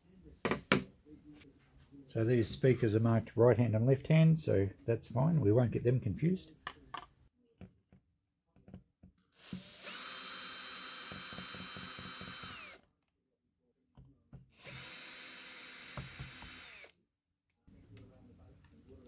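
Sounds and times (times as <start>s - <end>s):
power drill motor whine: 9.4s - 12.8s, 14.6s - 16.9s.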